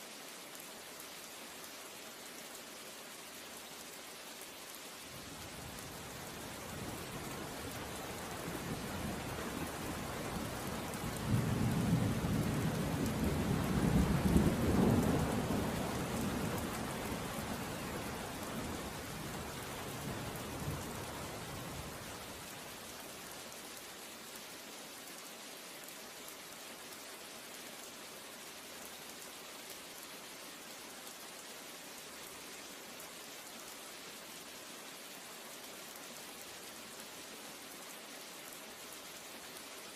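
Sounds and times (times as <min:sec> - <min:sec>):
steady rain falling: 0:00.0 - 0:39.9
low rumble of thunder: 0:05.5 - 0:22.0.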